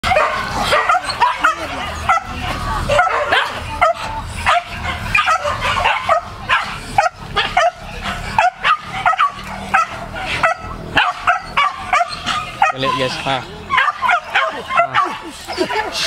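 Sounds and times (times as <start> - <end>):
dogs yelping and barking: 0.0 - 16.0.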